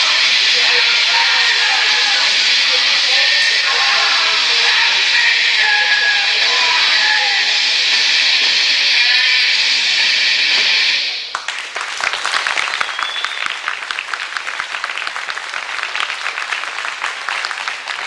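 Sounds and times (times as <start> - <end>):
audience applause: 0.0 - 9.6, 10.6 - 18.0
steady hiss: 0.0 - 11.3.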